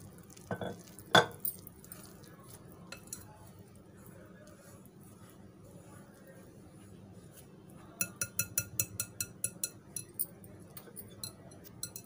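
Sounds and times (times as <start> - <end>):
whisk clinking against glass bowl: 2.9 - 3.4, 8.0 - 12.0.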